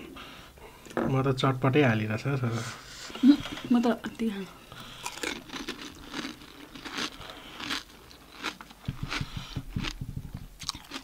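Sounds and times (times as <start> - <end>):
crisp shells crunching when chewed: 4.8 - 10.0, 10.6 - 11.0.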